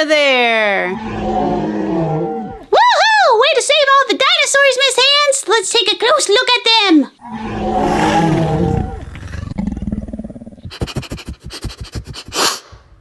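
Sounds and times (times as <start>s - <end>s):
toy dinosaur roaring: 1.0s - 2.7s, 7.2s - 10.4s.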